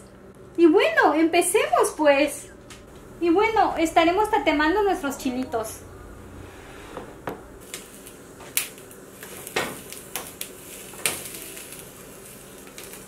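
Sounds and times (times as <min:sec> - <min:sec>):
faint steady hiss: 0:05.2 - 0:13.0.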